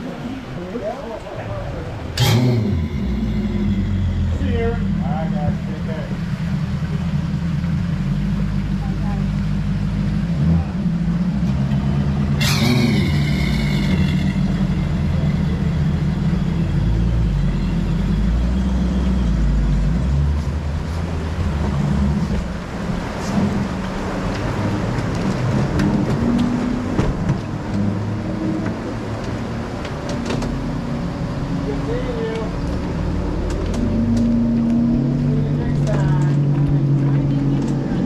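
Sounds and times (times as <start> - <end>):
outboard motors idling: 0.0 - 38.0
high-pitched squeal: 2.2 - 5.1, 12.4 - 19.5.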